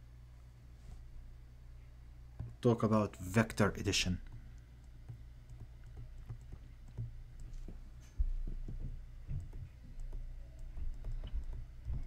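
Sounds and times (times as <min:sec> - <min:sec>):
steady low hum: 0:00.0 - 0:12.0
stylus tapping on tablet screen: 0:05.0 - 0:12.0.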